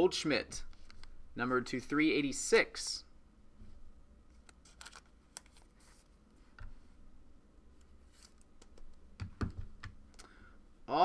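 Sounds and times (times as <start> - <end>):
cards and plastic sleeves handled: 4.3 - 6.7, 7.8 - 9.0.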